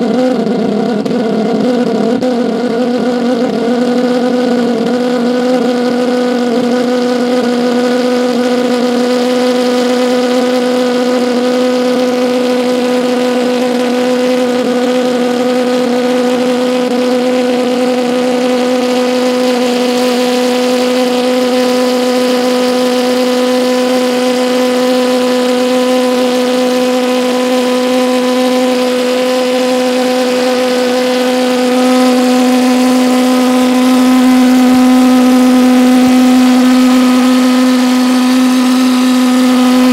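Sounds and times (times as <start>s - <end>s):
pulse jet engine droning: 0.0s - 39.9s.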